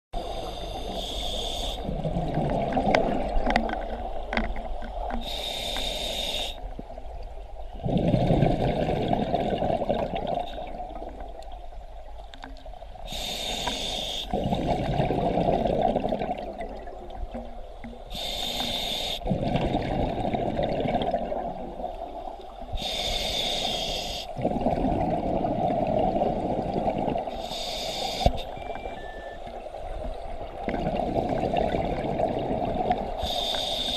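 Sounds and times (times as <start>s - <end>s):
diver breathing through regulator: 0.2s - 2.0s, 5.2s - 6.7s, 13.1s - 14.6s, 18.1s - 19.4s, 22.7s - 24.5s, 27.3s - 28.6s, 33.1s - 33.9s
exhaled bubbles rumbling: 1.8s - 5.2s, 6.8s - 11.9s, 14.3s - 18.0s, 19.2s - 22.8s, 24.4s - 27.4s, 29.9s - 33.2s.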